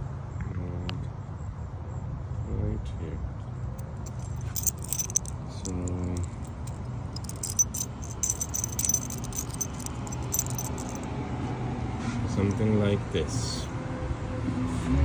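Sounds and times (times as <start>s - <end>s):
metal clamp and bolts jingling: 3.8s - 11.1s.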